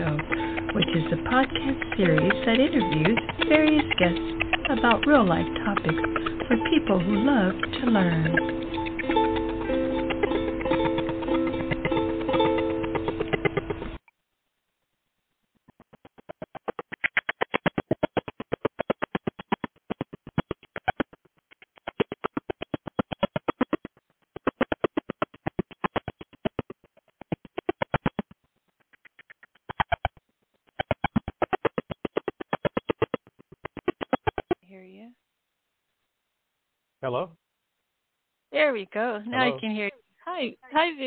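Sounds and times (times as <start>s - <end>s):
buzzing click pulse train: 0.0s - 14.0s.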